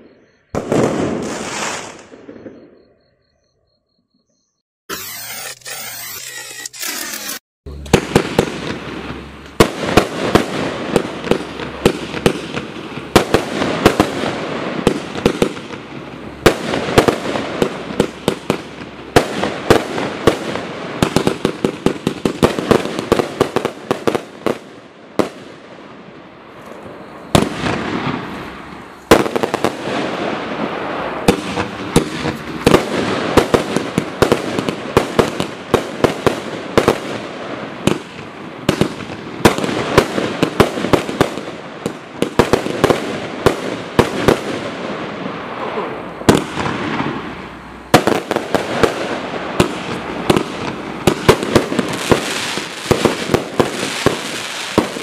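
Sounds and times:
loud fireworks bang: 0.0 - 2.8, 7.7 - 26.0, 26.7 - 55.0
fireworks crackling: 0.6 - 2.3, 6.9 - 55.0
fireworks launch thumps and bursts: 31.2 - 37.2, 48.0 - 55.0.

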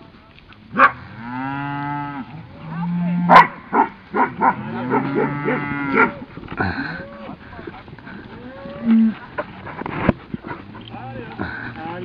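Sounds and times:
cattle mooing: 0.7 - 7.4, 8.2 - 9.2.

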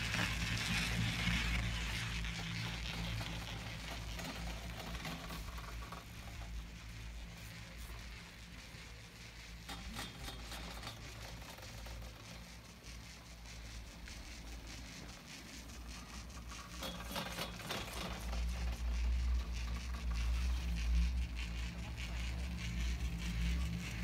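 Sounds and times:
chairlift low hum and rattling: 0.0 - 24.0.

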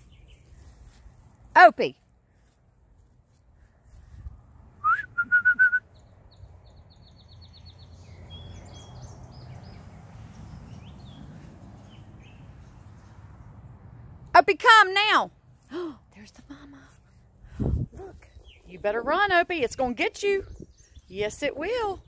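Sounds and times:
person whistling: 4.8 - 5.8.

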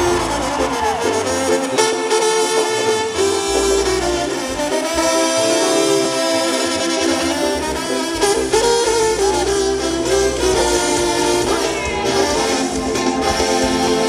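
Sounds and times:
low bass line: 0.0 - 1.8
brass horns sliding melody: 0.0 - 14.0.

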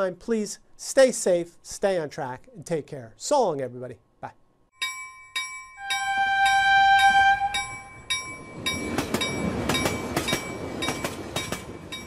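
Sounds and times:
railroad crossing bell ringing: 4.8 - 12.0
train horn blast: 5.8 - 8.0
passing train rumble and clatter: 6.4 - 12.0.

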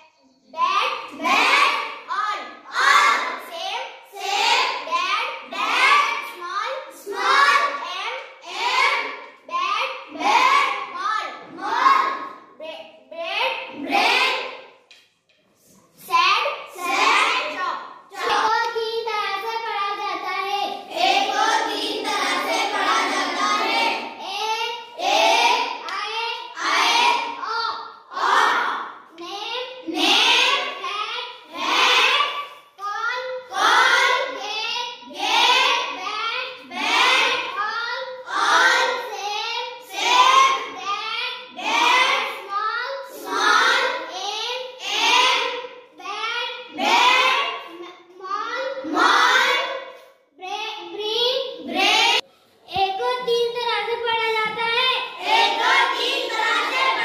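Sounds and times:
child chanting words: 15.9 - 57.0.

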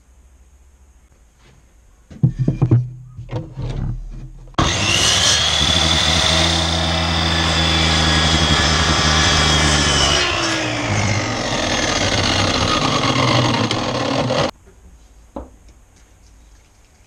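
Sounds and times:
mitre saw motor whine: 4.6 - 14.5.

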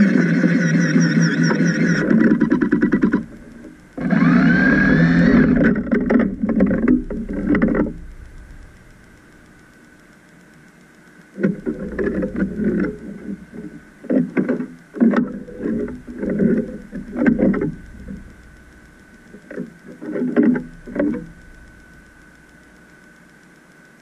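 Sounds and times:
faint high-pitched whine: 0.0 - 24.0.

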